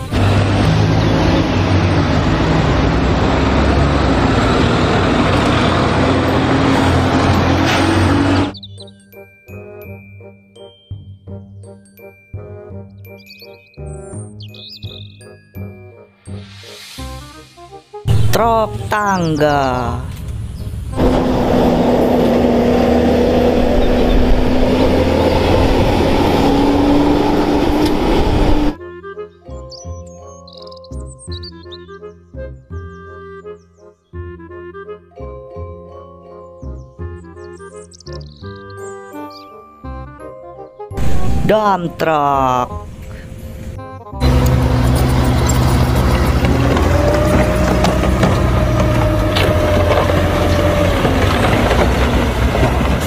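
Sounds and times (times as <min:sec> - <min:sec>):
bus engine pulling away: 0:00.0 - 0:08.6, 0:16.6 - 0:28.8, 0:40.9 - 0:41.5, 0:42.7 - 0:53.0
road traffic noise: 0:00.0 - 0:10.0, 0:12.4 - 0:28.8, 0:40.9 - 0:53.0.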